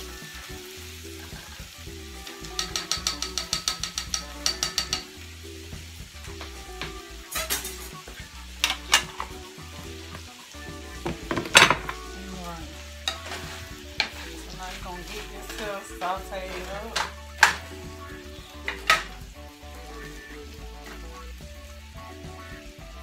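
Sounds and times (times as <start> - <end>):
food sizzling in a skillet: 0.0 - 23.0
seasoning shaker clicking: 2.4 - 5.0
wooden spatula knocking and scraping pan: 2.4 - 5.1, 11.0 - 12.1, 13.0 - 17.7, 18.5 - 19.2.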